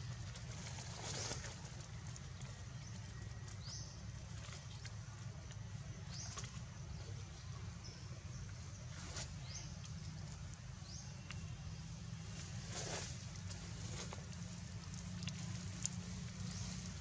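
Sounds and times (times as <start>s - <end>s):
steady low hum: 0.0s - 17.0s
dry leaves rustling: 0.2s - 2.7s, 11.8s - 17.0s.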